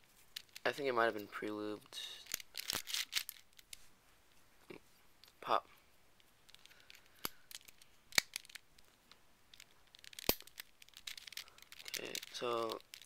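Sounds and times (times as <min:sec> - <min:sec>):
plastic puzzle clicks: 0:06.5 - 0:08.6, 0:09.5 - 0:13.0.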